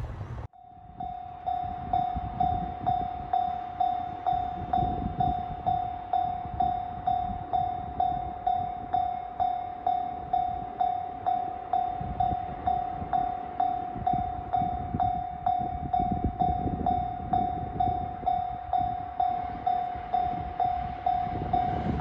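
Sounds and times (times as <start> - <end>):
low rumble: 0.0 - 0.5, 10.3 - 22.0
level crossing warning bell: 0.5 - 22.0.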